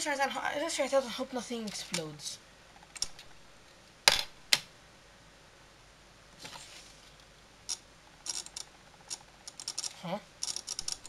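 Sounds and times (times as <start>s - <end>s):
soft rustle: 6.3s - 7.4s
small metal and plastic clicks: 7.7s - 11.0s.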